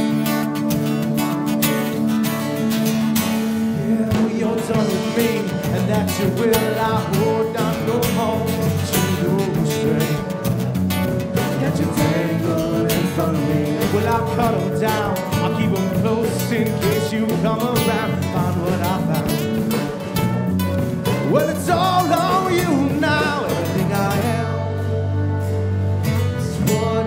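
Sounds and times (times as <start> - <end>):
electric bass: 0.0 - 27.0
strummed acoustic guitars: 0.0 - 27.0
man singing: 3.5 - 20.2, 21.1 - 25.0, 26.2 - 27.0.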